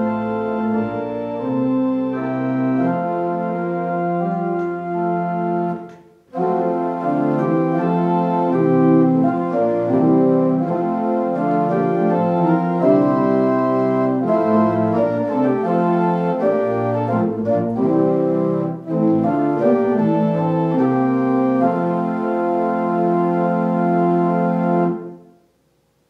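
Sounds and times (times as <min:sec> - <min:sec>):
organ playing a slow hymn: 0:00.0 - 0:25.5.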